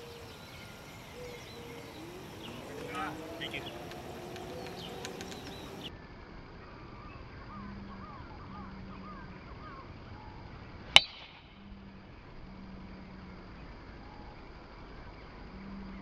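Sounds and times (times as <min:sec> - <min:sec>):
birds chirping faintly: 0:00.0 - 0:06.0
golf club striking ball: 0:01.4 - 0:05.8.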